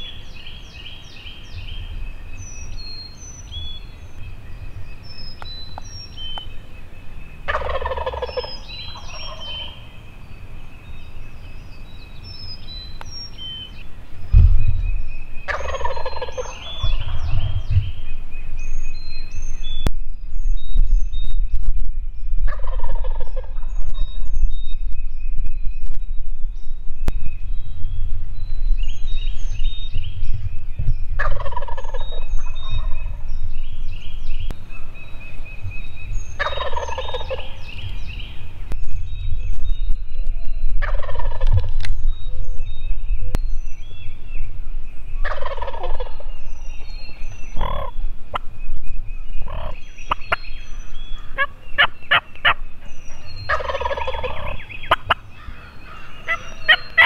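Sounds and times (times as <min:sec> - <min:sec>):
songbirds chirping: 0:00.0 - 0:57.0
turkey gobbling: 0:07.5 - 0:09.8, 0:15.5 - 0:17.6, 0:22.5 - 0:23.7, 0:31.2 - 0:32.9, 0:36.4 - 0:37.6, 0:40.8 - 0:41.7, 0:45.2 - 0:46.2, 0:47.6 - 0:48.4, 0:49.5 - 0:50.3, 0:51.3 - 0:57.0
low rumble: 0:13.7 - 0:36.5.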